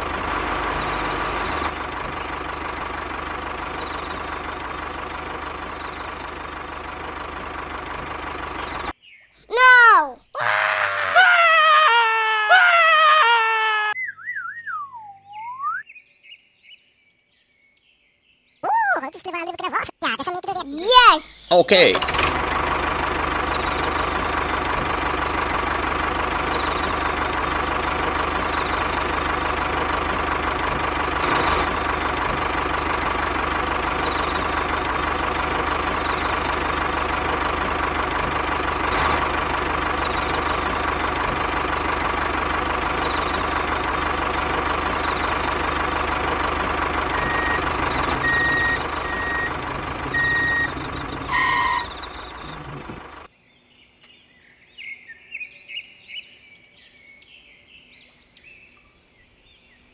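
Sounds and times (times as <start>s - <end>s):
toy tractor motor running: 46.6s - 53.1s.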